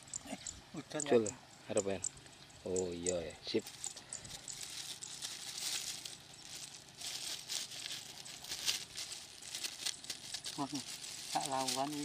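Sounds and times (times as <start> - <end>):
plastic bag crinkling: 4.5 - 12.0.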